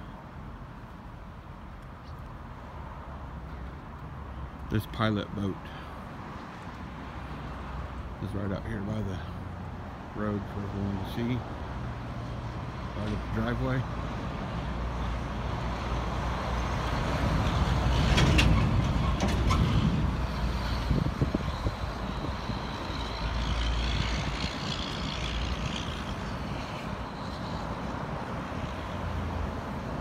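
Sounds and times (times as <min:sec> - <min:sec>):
vehicle passing: 0:13.6 - 0:30.0.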